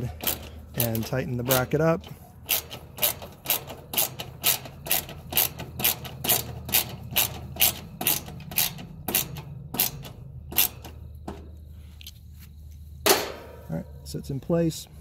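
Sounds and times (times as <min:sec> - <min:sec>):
socket ratchet clicking: 0:00.0 - 0:11.4.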